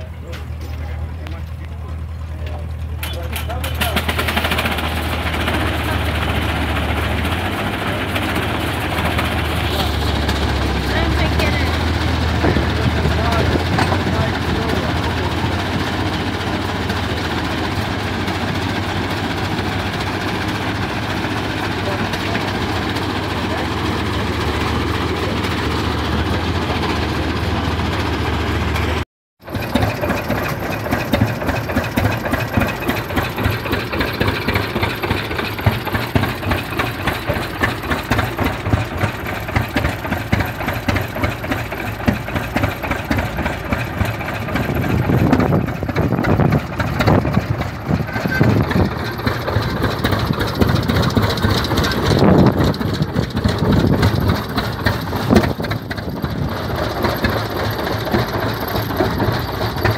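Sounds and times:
low engine hum: 0.0 - 59.9
tractor engine firing in pulses: 0.0 - 59.9.

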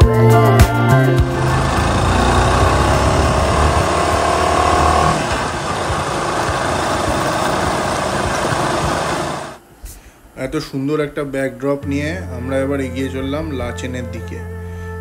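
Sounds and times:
motorcycle engine: 1.2 - 9.6.

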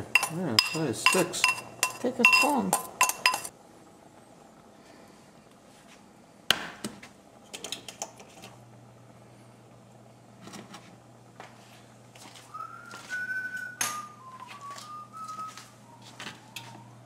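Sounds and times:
kitchen utensils clinking: 0.0 - 3.5, 13.8 - 14.2.

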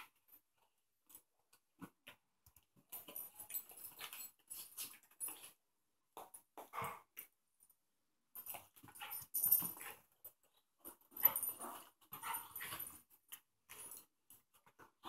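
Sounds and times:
dog play sounds: 1.0 - 7.4, 8.3 - 15.0.

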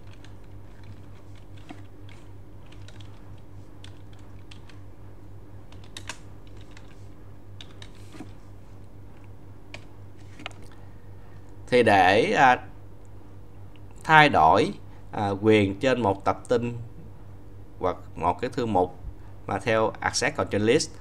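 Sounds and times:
keyboard keystrokes: 0.0 - 4.8, 5.7 - 7.0
steady low hum: 0.0 - 21.0.

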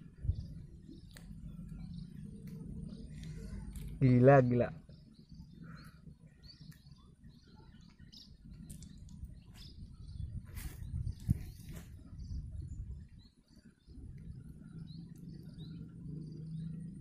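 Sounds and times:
small birds chirping: 0.0 - 17.0
steady low rumble: 0.0 - 17.0
fishing line rustling and scraping: 10.4 - 12.1.

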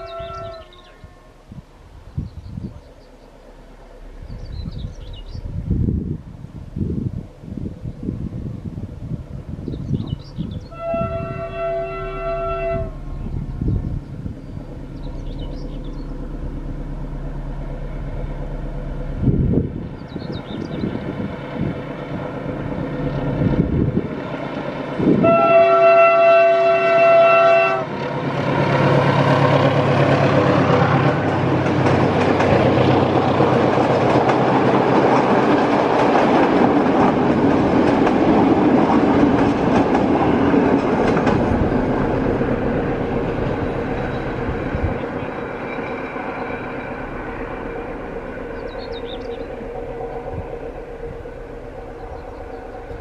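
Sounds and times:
locomotive horn blast: 0.0 - 1.6, 10.6 - 13.7, 25.0 - 28.0
train passing: 0.0 - 53.0
wheels on track: 1.5 - 53.0.

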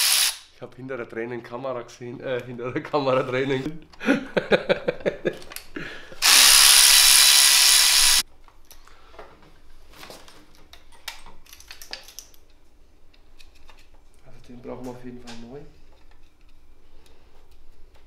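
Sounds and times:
electric ratchet whirring: 0.0 - 0.4, 6.2 - 8.2
man laughing: 3.7 - 6.2.

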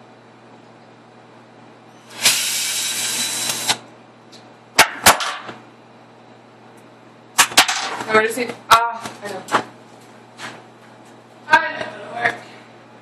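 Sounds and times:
cordless drill running: 2.1 - 3.8.

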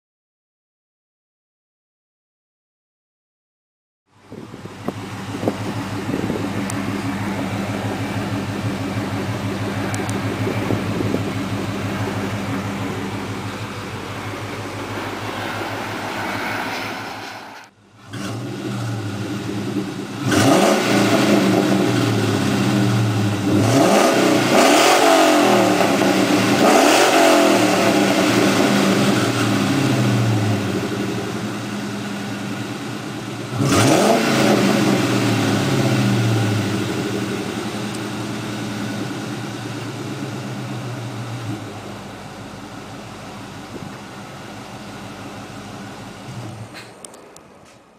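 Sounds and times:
car engine idling: 4.1 - 47.9
car engine revving: 4.4 - 47.7.

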